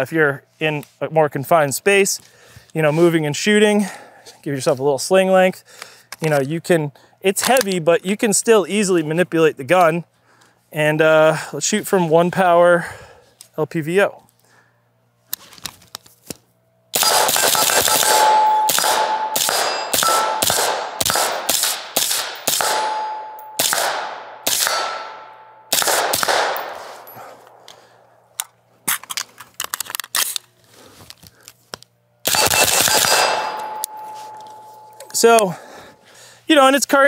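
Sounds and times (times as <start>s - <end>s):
suppressed rifle shots: 17.0s - 27.0s, 32.2s - 34.0s
ringing note: 18.2s - 20.4s, 22.9s - 23.6s, 33.3s - 35.6s.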